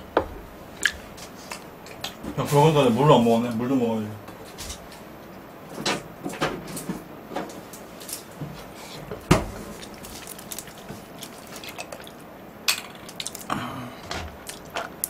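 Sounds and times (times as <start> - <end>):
wet eating sounds: 9.2 - 12.3, 12.9 - 15.0.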